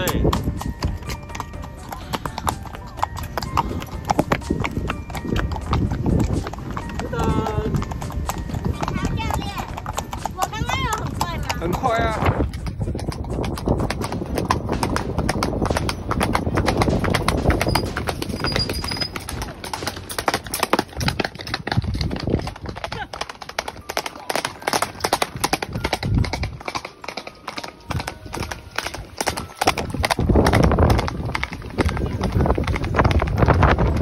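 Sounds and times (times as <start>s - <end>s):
horse hooves on pavement: 0.0s - 34.0s.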